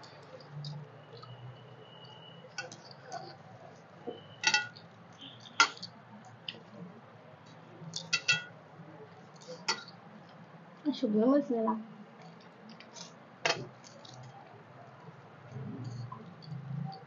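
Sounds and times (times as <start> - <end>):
steel plates clinking: 4.4 - 4.8, 8.0 - 8.6
fingers mixing rice on metal plate: 7.5 - 8.6.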